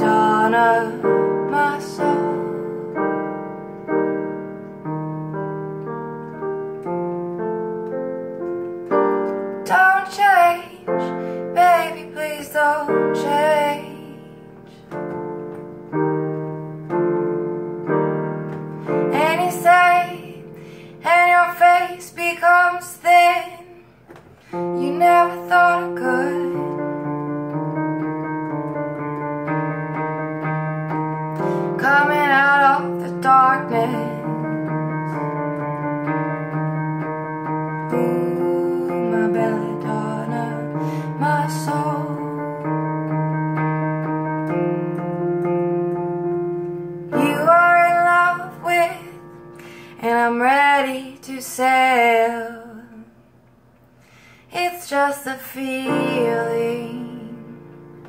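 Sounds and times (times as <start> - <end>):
woman singing with vibrato: 0.0 - 3.2, 9.6 - 14.8, 18.9 - 27.2, 31.4 - 35.5, 37.8 - 43.0, 47.1 - 53.2, 54.4 - 57.8
electronic keyboard chords: 0.0 - 51.4.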